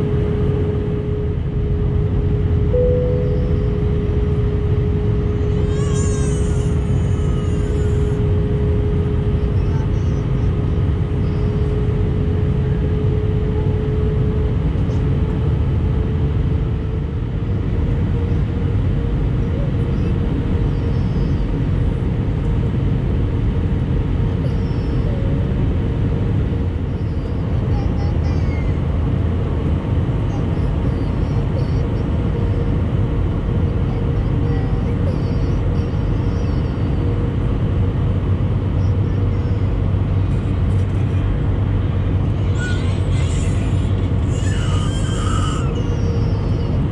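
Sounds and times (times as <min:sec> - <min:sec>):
jet engine rumble: 0:00.0 - 0:46.9
steady hum: 0:00.0 - 0:46.9.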